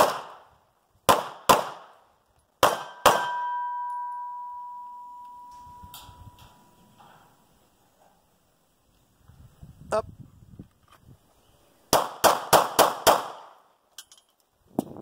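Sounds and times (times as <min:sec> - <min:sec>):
pistol shots: 0:00.0 - 0:00.5, 0:01.1 - 0:02.0, 0:02.6 - 0:03.5, 0:11.9 - 0:13.6
steel target ringing: 0:02.8 - 0:07.0.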